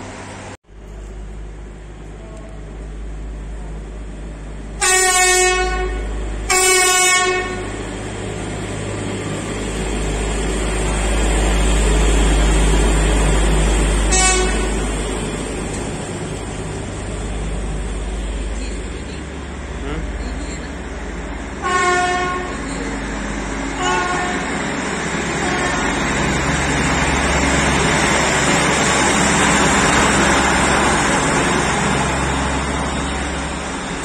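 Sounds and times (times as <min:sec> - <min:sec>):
machine horn blasts: 0:04.8 - 0:07.7, 0:14.1 - 0:14.7, 0:21.6 - 0:22.6, 0:23.8 - 0:24.5
engine and wheels rumbling past: 0:07.4 - 0:18.6, 0:23.0 - 0:34.0.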